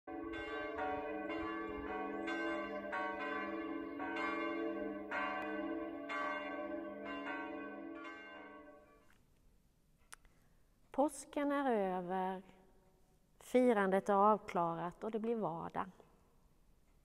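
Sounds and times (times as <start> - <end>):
church bells ringing: 0.1 - 9.0.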